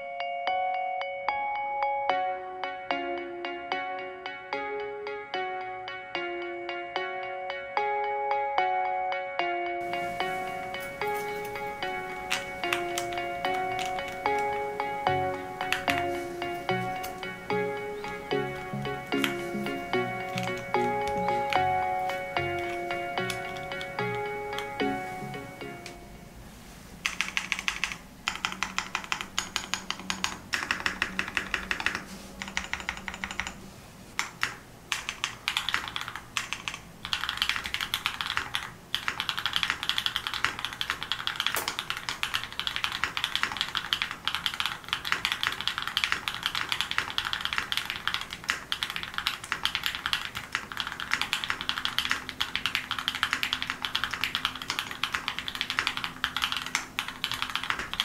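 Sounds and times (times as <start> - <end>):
fast typing on mechanical keyboard: 10.6 - 24.8, 27.0 - 33.6, 34.2 - 58.0.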